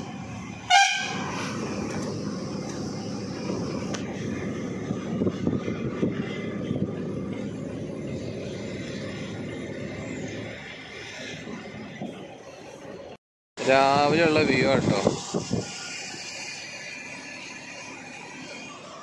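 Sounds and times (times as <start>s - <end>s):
lorry engine rumble: 0.0s - 19.0s
tyre and road noise: 0.0s - 19.0s.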